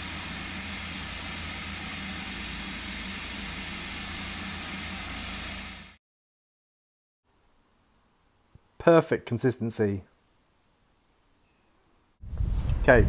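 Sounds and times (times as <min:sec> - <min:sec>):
food processor blending: 0:00.0 - 0:06.0.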